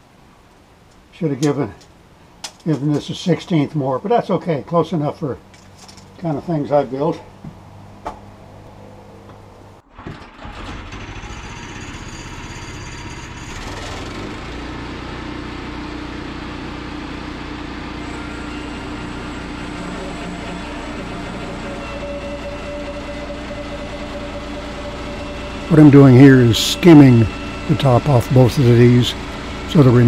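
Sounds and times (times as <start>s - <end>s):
bandsaw mill engine and saw drone: 10.0s - 30.0s.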